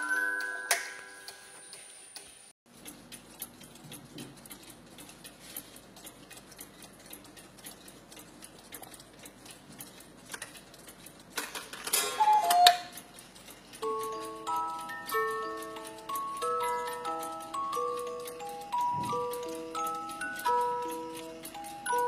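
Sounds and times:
music-box tune: 0.0 - 1.8, 12.0 - 13.0, 13.7 - 22.0
clock ticking: 2.7 - 11.6, 12.2 - 22.0
clock strike mechanism clattering: 11.2 - 22.0
cuckoo call: 12.0 - 13.0.

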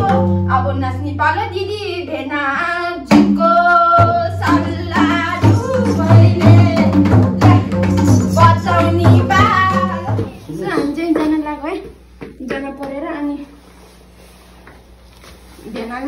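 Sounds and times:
barrel drum beating: 3.1 - 11.4.

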